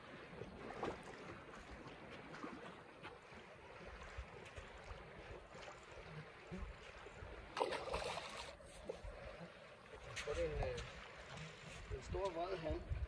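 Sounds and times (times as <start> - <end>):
wind buffeting microphone: 11.7 - 13.0.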